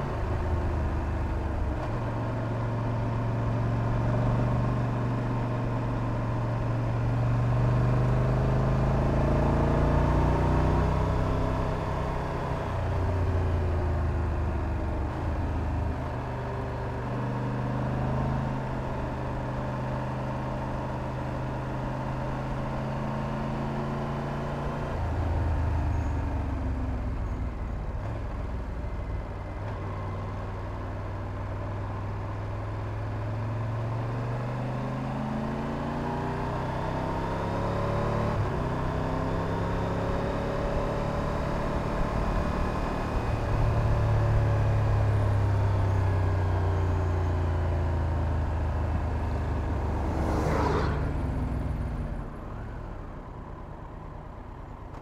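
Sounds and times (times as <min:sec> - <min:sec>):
road noise: 0:00.0 - 0:55.0
motorcycle engine revving: 0:33.0 - 0:52.2
brief whoosh: 0:50.0 - 0:51.5.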